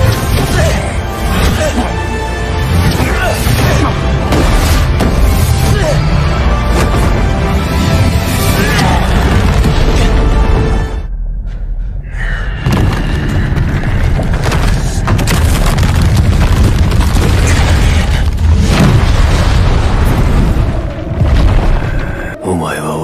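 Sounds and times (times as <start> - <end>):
dramatic film music: 0.0 - 23.0
heavy booming impacts: 9.0 - 22.4
crashing rubble: 12.6 - 22.3.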